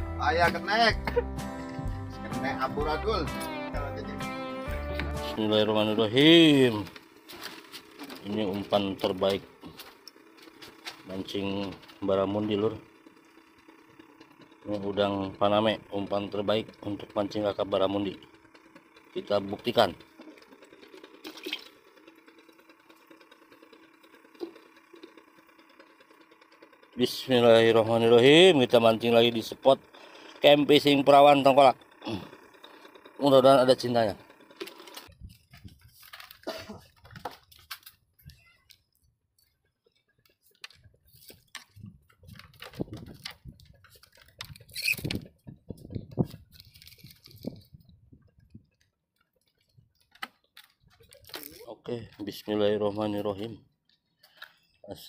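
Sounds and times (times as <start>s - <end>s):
air pump humming faintly: 0.2s - 38.6s, 39.4s - 55.0s
bamboo deck creaking: 6.1s - 39.0s, 39.6s - 53.4s.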